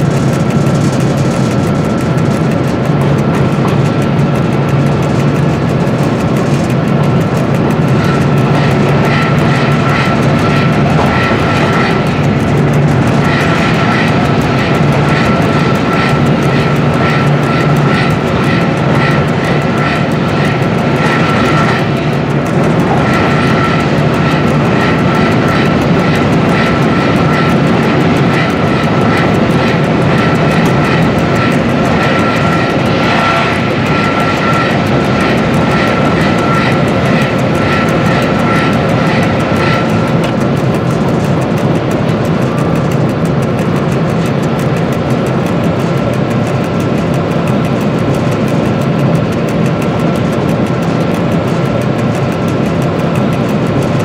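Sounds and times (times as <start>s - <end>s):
locomotive engine drone: 0.0s - 54.0s
thin high whine: 7.8s - 41.0s.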